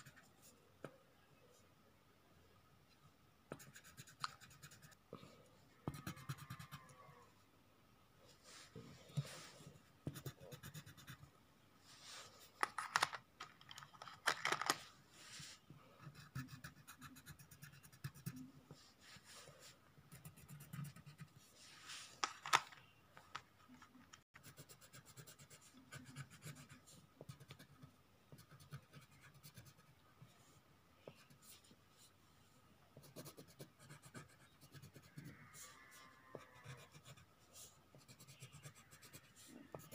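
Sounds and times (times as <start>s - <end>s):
pencil scratching on paper: 3.5s - 5.0s, 5.8s - 6.9s, 9.1s - 11.2s, 16.0s - 18.5s, 19.1s - 21.5s, 24.4s - 29.9s, 33.0s - 35.7s, 36.3s - 39.9s.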